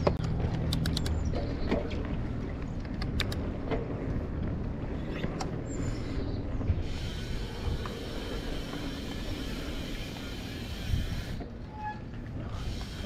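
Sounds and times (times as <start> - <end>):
bike tyres rumbling on dirt: 3.5 - 13.0.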